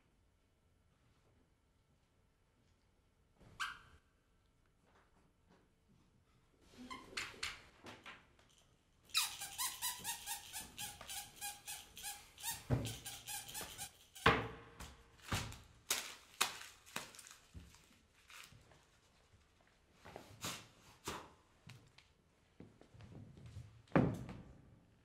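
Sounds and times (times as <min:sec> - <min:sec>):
squeaky toy squeaking: 0:09.1 - 0:14.3.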